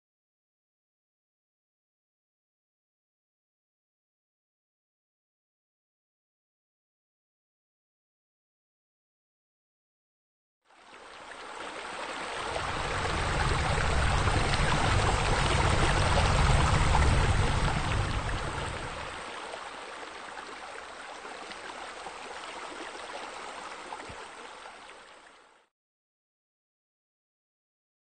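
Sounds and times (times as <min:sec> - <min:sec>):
rushing noise with deep rumble: 0:12.4 - 0:19.3.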